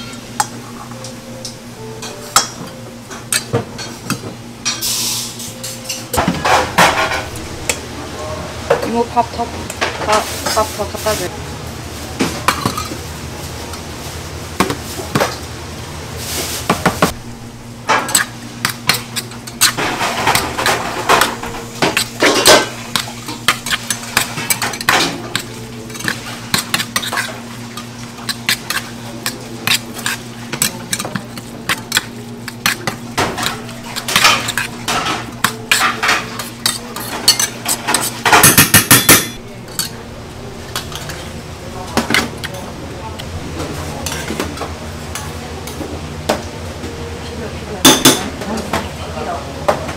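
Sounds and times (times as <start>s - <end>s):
low hum: 5.6s - 10.0s, 17.1s - 18.5s, 39.4s - 47.7s.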